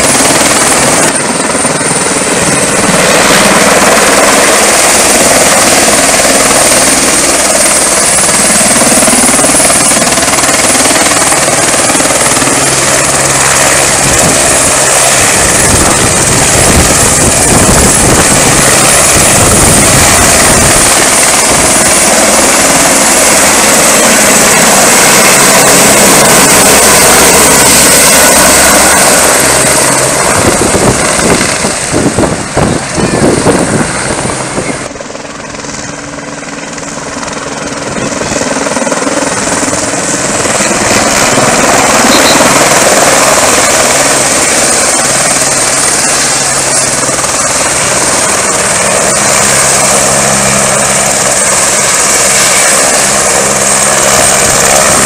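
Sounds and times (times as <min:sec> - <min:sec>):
helicopter rotor noise: 0:00.0 - 0:55.0
high whine: 0:41.5 - 0:43.4.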